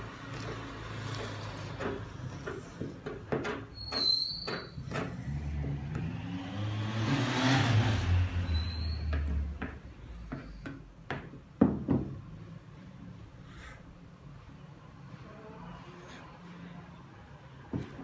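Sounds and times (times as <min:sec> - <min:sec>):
motor vehicle passing by: 0:00.0 - 0:02.4, 0:04.8 - 0:10.2
knocks and clatters at kitchen counter: 0:00.5 - 0:05.8, 0:09.2 - 0:12.3.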